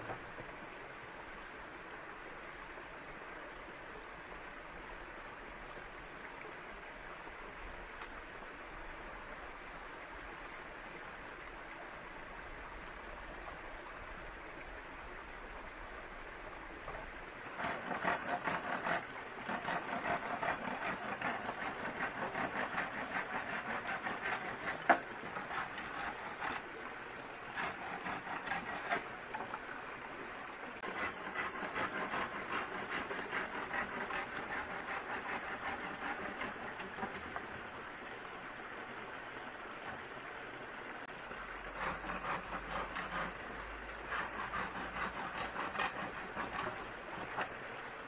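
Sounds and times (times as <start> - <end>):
hand tool strokes on wood: 17.4 - 26.7, 27.5 - 29.6, 30.8 - 37.4, 41.7 - 47.6.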